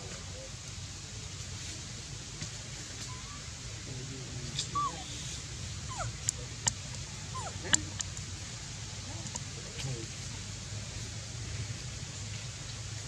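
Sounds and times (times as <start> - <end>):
baby monkey whimpering: 4.6 - 6.2, 7.3 - 7.8.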